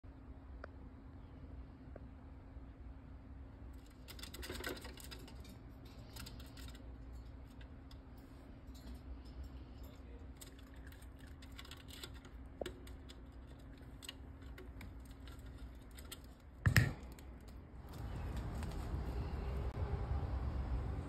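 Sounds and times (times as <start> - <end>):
faint steady hum: 0.0 - 21.0
small animal claws clicking on mesh: 3.8 - 8.0, 8.7 - 17.6.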